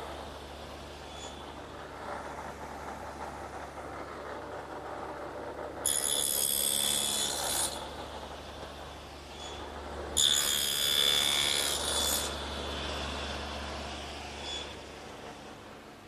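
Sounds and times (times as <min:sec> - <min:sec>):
saw cutting through wood: 0:05.8 - 0:08.0, 0:10.2 - 0:14.8
table saw running: 0:10.2 - 0:14.8.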